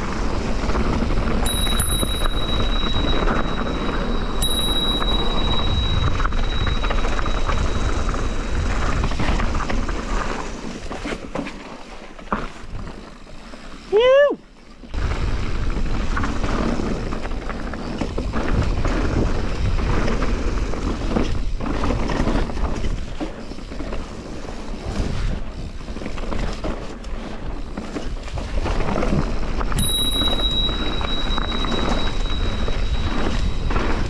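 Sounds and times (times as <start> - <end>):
wind on microphone: 0.0 - 11.0, 14.9 - 26.6, 27.4 - 34.0
bike tyres rolling on dirt: 0.0 - 34.0
high steady squeal: 1.4 - 9.7, 29.8 - 34.0.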